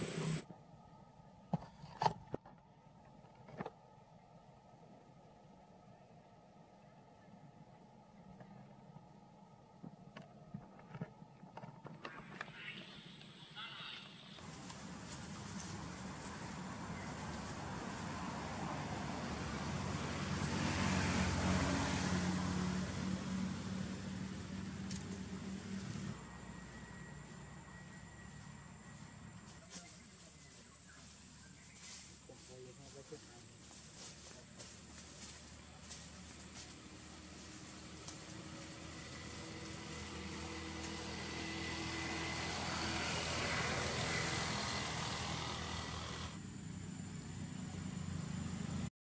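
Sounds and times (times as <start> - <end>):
motorbikes passing: 0.0 - 0.4, 13.6 - 48.9
car driving past: 14.5 - 30.5, 35.3 - 48.9.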